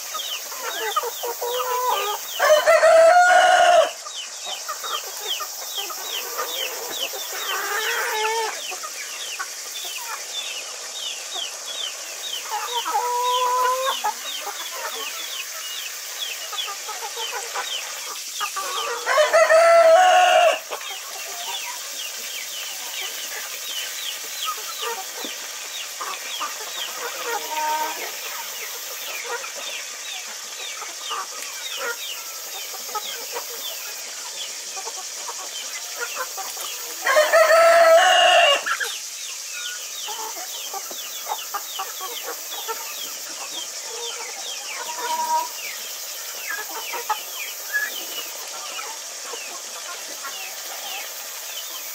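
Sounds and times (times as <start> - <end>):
chickens clucking: 0.0 - 51.9
steady high hiss: 0.0 - 51.9
rooster crowing: 1.7 - 4.0, 18.8 - 20.7, 37.0 - 38.7.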